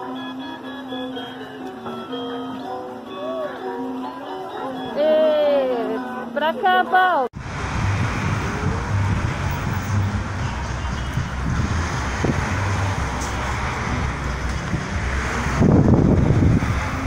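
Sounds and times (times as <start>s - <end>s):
road traffic rumble: 7.4s - 17.0s.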